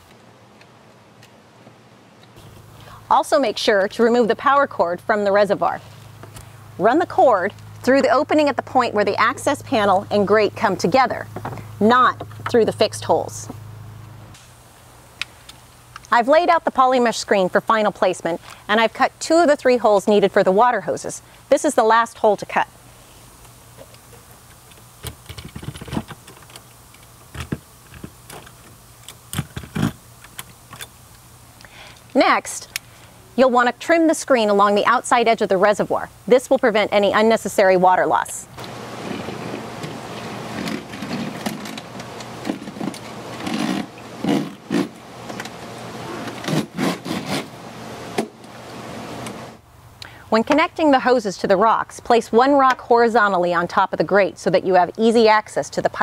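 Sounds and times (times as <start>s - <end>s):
plastic mesh rustling and scraping: 25.0s - 26.6s.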